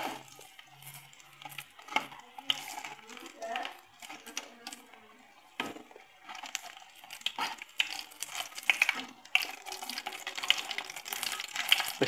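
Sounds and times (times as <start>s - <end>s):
metal skimmer scraping pan: 0.0s - 4.9s, 5.5s - 12.0s
chicken deep-frying in oil: 0.0s - 12.0s.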